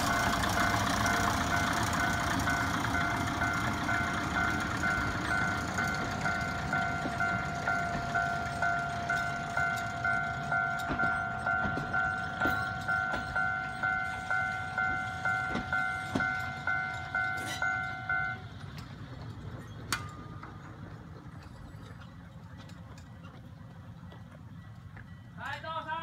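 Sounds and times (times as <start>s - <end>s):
level crossing warning bell: 0.0s - 18.9s, 24.5s - 26.0s
diesel railcar running: 0.0s - 26.0s.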